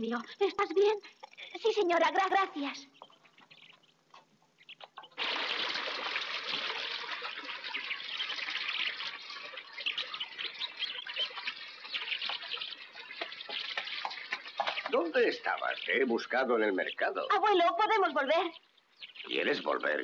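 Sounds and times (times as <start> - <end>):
fountain water splashing: 5.2 - 17.2.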